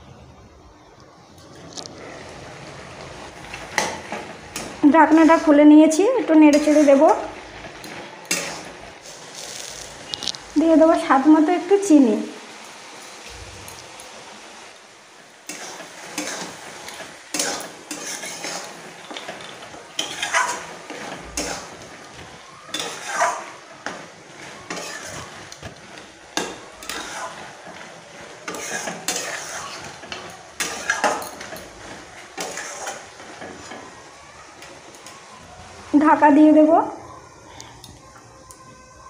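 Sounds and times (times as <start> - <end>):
spatula scraping metal pan: 2.0 - 10.2, 15.4 - 33.9.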